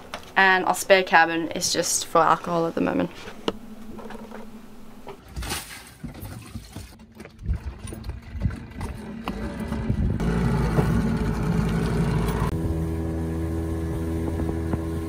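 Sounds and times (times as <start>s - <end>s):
steady low hum: 0.0s - 5.2s, 9.9s - 15.0s
knocks and rattles of motor: 3.5s - 15.0s.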